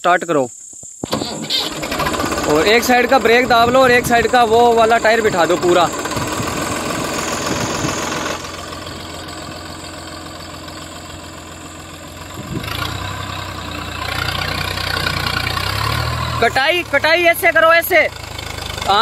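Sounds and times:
wheel digging into sandy soil: 0:01.0 - 0:09.0
tractor diesel engine under load: 0:01.0 - 0:19.0.

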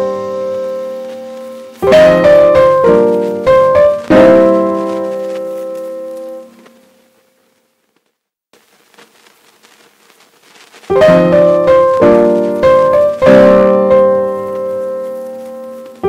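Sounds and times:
piano chords: 0:00.0 - 0:07.2, 0:10.9 - 0:16.0.

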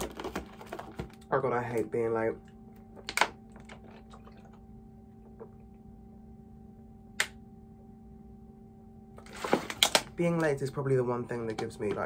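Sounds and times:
faint steady hum: 0:00.0 - 0:12.0
plastic bottle crackling: 0:09.2 - 0:10.1.

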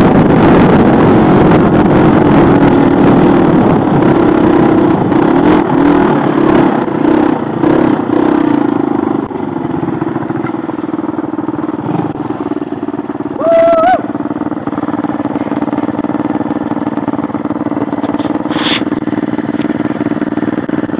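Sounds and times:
dirt bike engine revving: 0:00.0 - 0:20.9
short wavering shout: 0:13.4 - 0:14.2.

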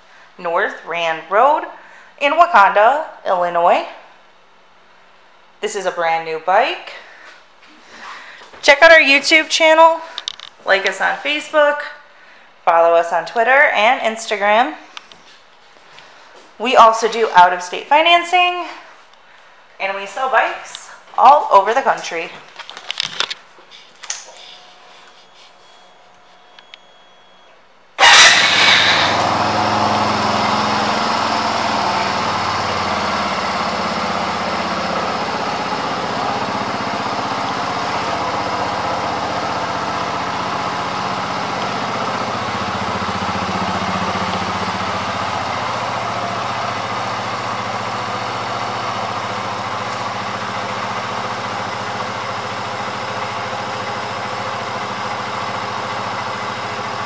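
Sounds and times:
motorcycle engine starting and idling: 0:24.1 - 0:57.0.

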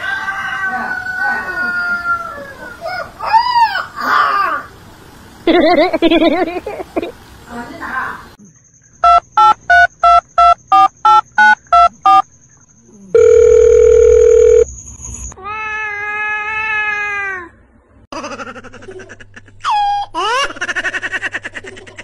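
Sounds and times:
steady phone tone: 0:09.0 - 0:12.2, 0:13.2 - 0:14.7
telephone keypad beeps: 0:09.0 - 0:12.2, 0:13.2 - 0:14.7.

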